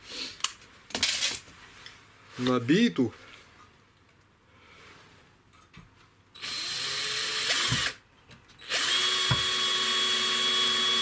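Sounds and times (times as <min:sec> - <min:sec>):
cordless drill spinning: 0:06.4 - 0:08.0, 0:08.6 - 0:11.0.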